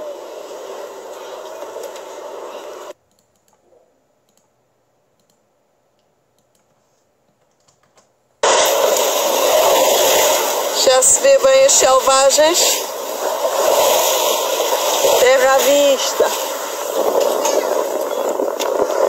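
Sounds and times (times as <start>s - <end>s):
steady hiss: 0.0s - 3.0s, 8.4s - 19.0s
faint clicks: 4.3s - 4.6s, 5.2s - 8.1s
rushing wind and sea: 8.4s - 19.0s.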